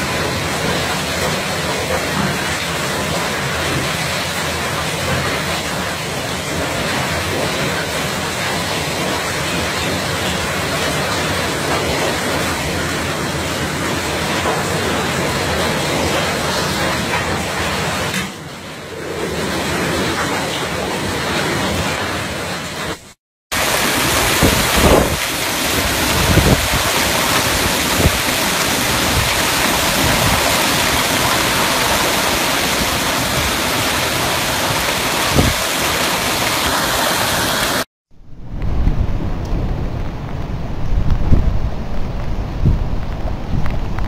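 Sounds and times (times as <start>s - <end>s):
heavy rain: 0.0s - 44.0s
storm wind: 0.0s - 44.0s
wind buffeting microphone: 23.9s - 31.2s, 34.8s - 35.6s, 38.2s - 44.0s.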